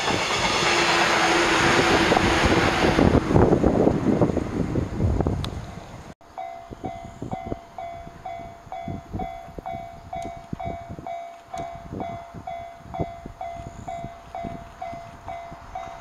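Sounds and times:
level crossing warning bell: 6.3s - 16.0s.

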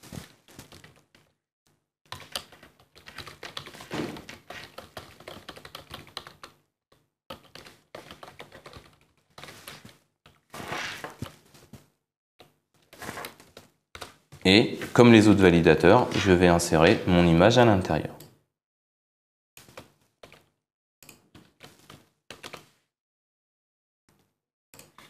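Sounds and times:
keyboard typing: 2.1s - 6.6s, 7.3s - 10.0s, 21.4s - 22.7s.

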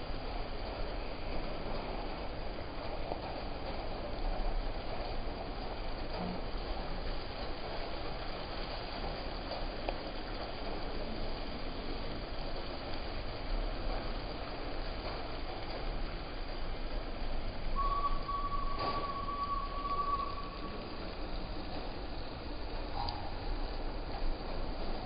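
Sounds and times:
traffic on wet road: 0.0s - 25.0s
steady high-pitched tone: 17.8s - 21.0s.

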